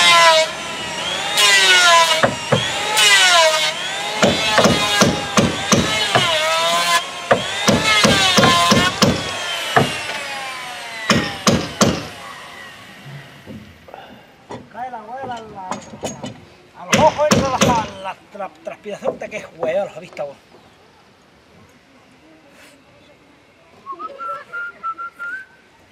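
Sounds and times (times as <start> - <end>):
rasping strokes on wood: 0.0 - 12.3
sharp knocks: 2.2 - 2.7, 4.2 - 6.4, 7.3 - 10.2, 11.1 - 12.1, 13.4 - 13.8.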